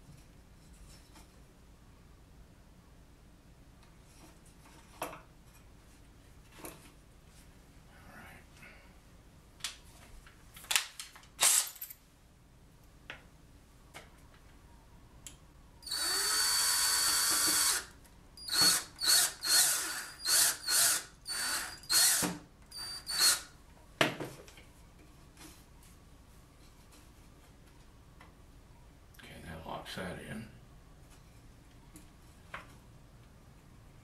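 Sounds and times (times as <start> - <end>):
cordless drill running in bursts: 15.8 - 23.4.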